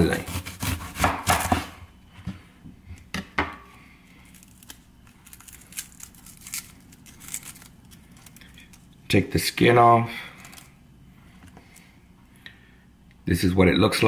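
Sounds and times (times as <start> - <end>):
knife cutting onion: 0.0 - 1.8
onion skin crackling: 3.8 - 9.2.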